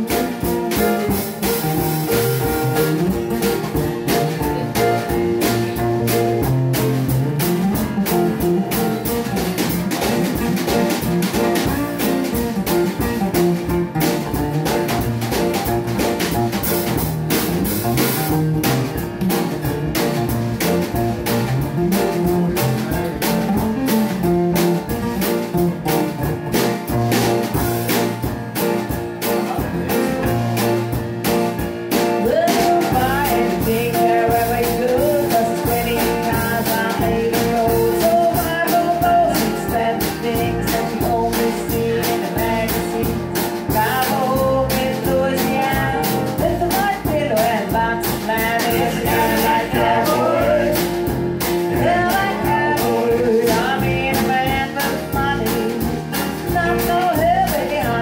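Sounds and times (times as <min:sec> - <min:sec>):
acoustic bass guitar: 0:00.0 - 0:58.0
drums in a steady beat: 0:00.0 - 0:58.0
person singing: 0:32.2 - 0:51.0, 0:51.8 - 0:58.0.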